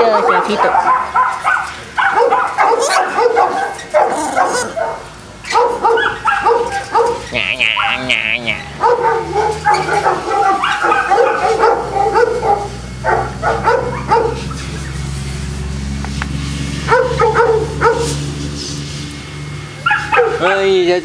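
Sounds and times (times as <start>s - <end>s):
dogs barking and yipping: 0.0s - 15.1s, 16.8s - 18.6s, 19.7s - 20.5s.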